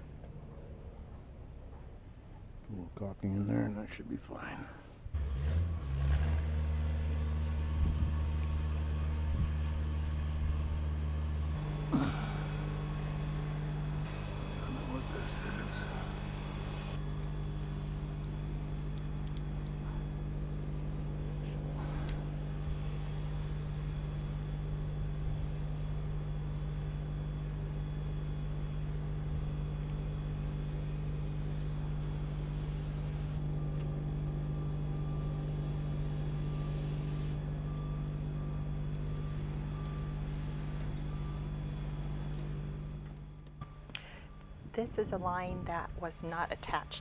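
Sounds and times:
engine humming steadily: 0:00.0 - 0:47.0.

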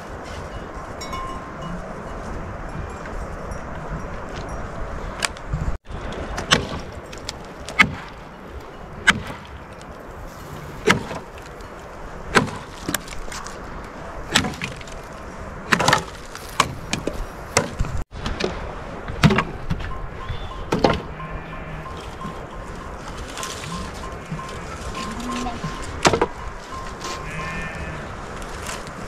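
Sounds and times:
dry branches cracking: 0:06.0 - 0:18.0, 0:23.0 - 0:29.0.

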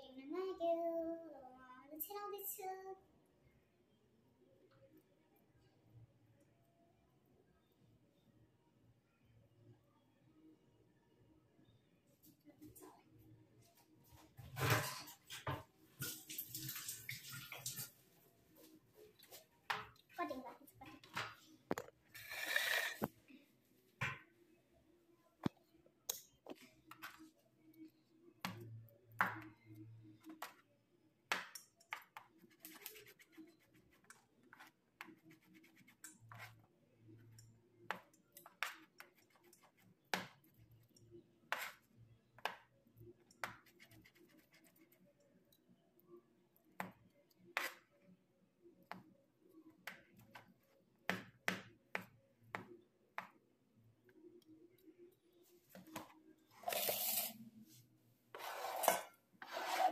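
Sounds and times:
faint knife scraping: 0:22.1 - 0:23.1, 0:58.3 - 0:59.9.

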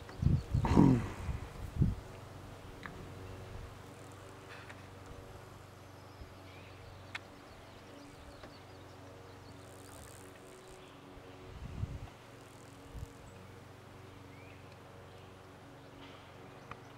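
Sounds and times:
high chirps of birds or insects: 0:00.0 - 0:01.9, 0:03.2 - 0:13.6.

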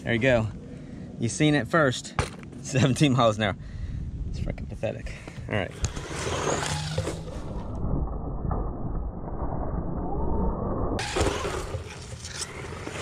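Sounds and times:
electric motor whine: 0:05.8 - 0:07.8.

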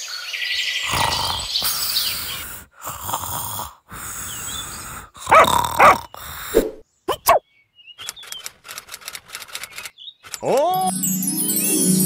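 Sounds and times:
birds chirping faintly: 0:00.0 - 0:02.8, 0:04.0 - 0:10.9
cartoon snoring: 0:00.8 - 0:07.4.

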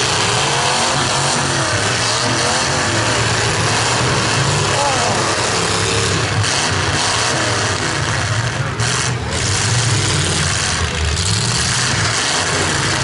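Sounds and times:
wide rushing noise: 0:00.0 - 0:11.0
deep engine rumble: 0:00.0 - 0:13.0
pickup truck engines revving: 0:00.0 - 0:13.0.

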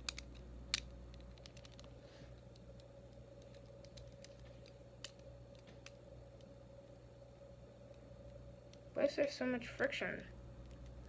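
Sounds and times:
plastic lego pieces clicking: 0:00.0 - 0:01.9, 0:02.8 - 0:06.0.

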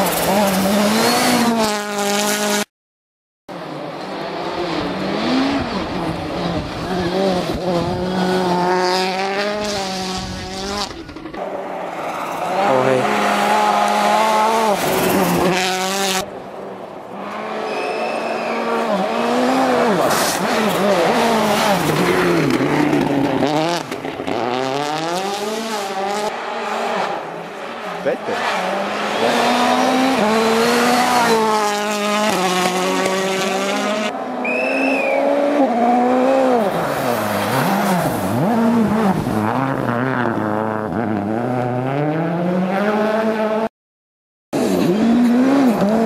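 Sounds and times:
car engine revving high: 0:17.3 - 0:27.2, 0:28.0 - 0:43.7.

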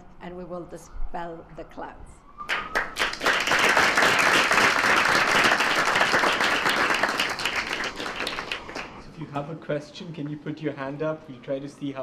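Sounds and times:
audience applauding: 0:02.5 - 0:09.0.

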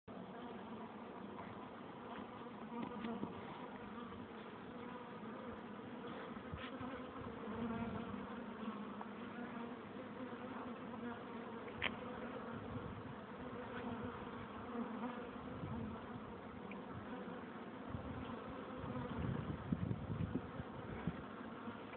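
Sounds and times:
honeybees buzzing: 0:00.1 - 0:21.9
faint ticks: 0:11.6 - 0:12.0.

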